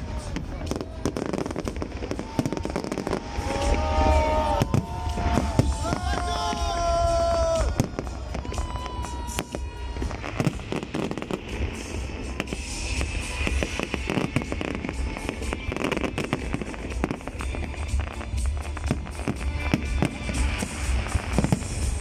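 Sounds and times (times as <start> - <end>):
fireworks bangs and crackling: 0.0 - 22.0.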